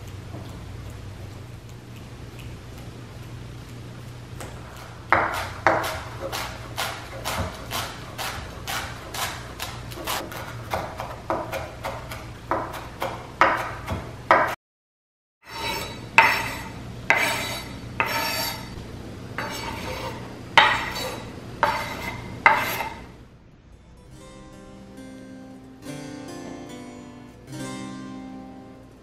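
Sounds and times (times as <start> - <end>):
knife chopping on cutting board: 5.1 - 14.6, 15.5 - 18.6, 19.4 - 23.0
knife scraping board with clinks: 15.5 - 18.7, 19.4 - 23.0.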